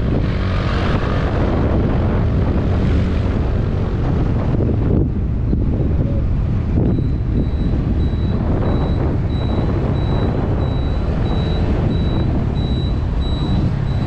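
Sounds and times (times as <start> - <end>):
road and wind rumble: 0.0 - 14.0
high electronic beep: 6.9 - 14.0.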